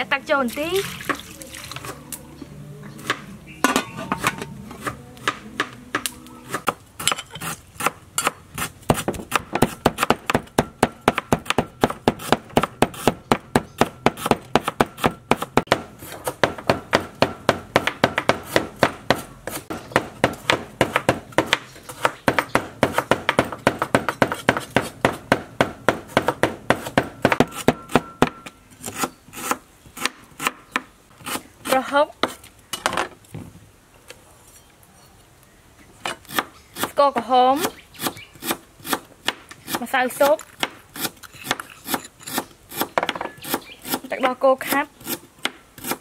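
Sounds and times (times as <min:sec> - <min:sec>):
cleaver chopping on wooden board: 0:04.1 - 0:31.4.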